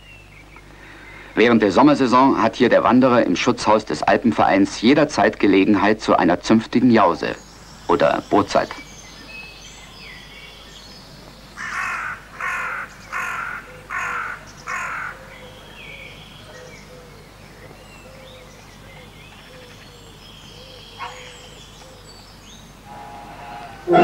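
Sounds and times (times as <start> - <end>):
small birds chirping: 0.0 - 24.0
crow cawing: 11.6 - 15.2.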